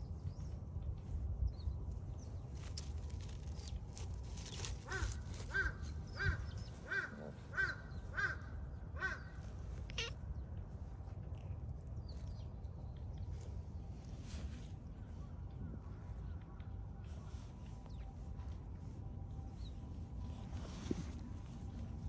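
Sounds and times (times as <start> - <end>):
scuffing in dry grass and leaves: 0.2 - 8.3, 12.1 - 22.0
cat meowing: 9.8 - 10.2.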